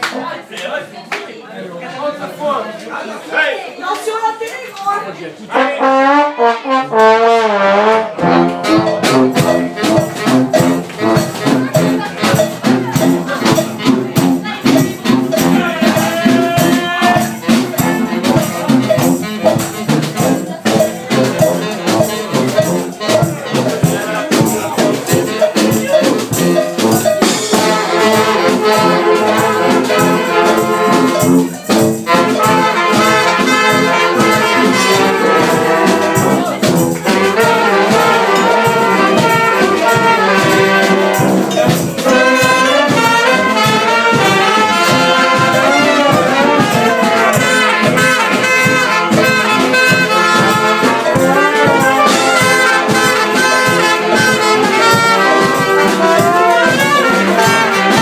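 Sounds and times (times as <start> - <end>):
brass band playing: 5.5 - 58.0
steady drum beat: 5.9 - 58.0.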